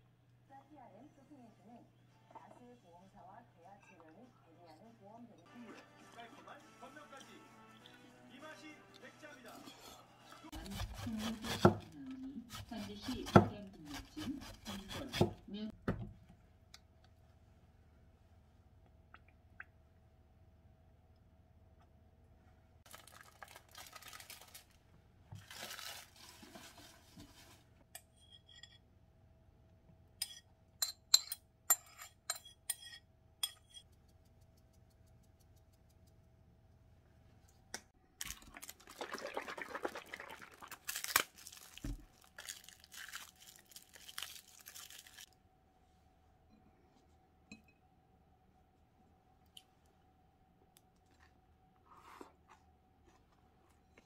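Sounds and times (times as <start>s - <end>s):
cabbage rustling and crunching in bowl: 25.4s - 27.7s, 38.2s - 45.3s.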